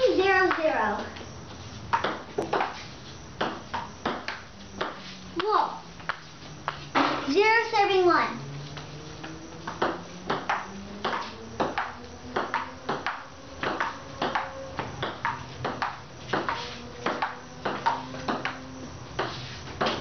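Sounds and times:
ping-pong ball bouncing and hit: 0:00.5 - 0:00.8, 0:01.9 - 0:02.8, 0:03.4 - 0:07.3, 0:09.2 - 0:20.0.

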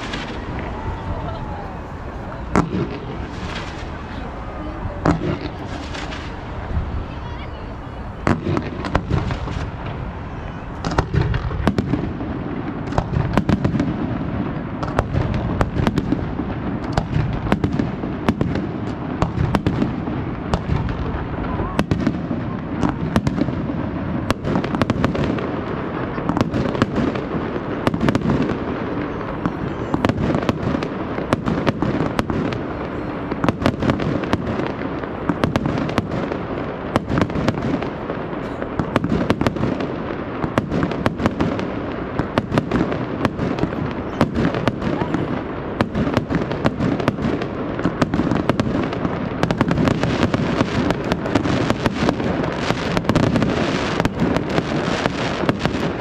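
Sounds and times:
fireworks bangs: 0:00.0 - 0:56.0
fireworks rumble and crackle: 0:00.0 - 0:56.0.

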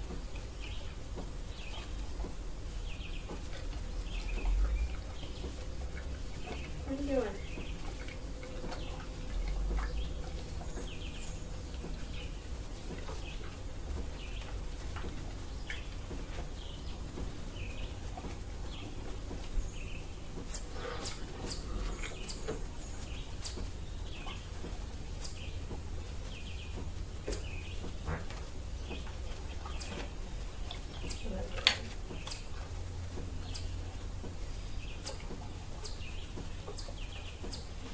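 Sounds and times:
low steady rumble: 0:00.0 - 0:37.9
small birds chirping: 0:00.0 - 0:37.9.

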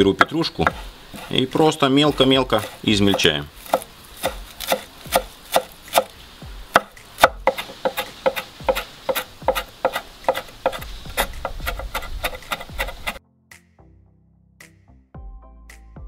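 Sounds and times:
knife chopping on wooden board: 0:00.0 - 0:01.4, 0:02.1 - 0:13.2.

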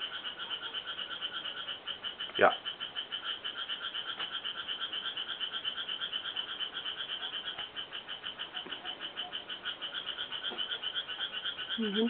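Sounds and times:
frogs calling with pulsing trill: 0:00.0 - 0:12.0.

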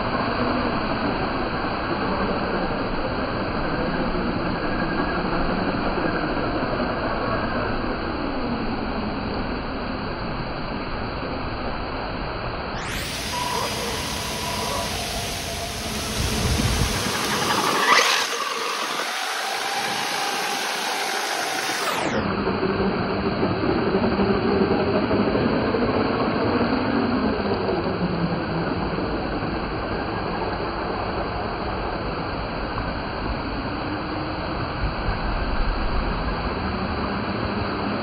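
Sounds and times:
toy car electric motor whirring: 0:12.8 - 0:22.2.

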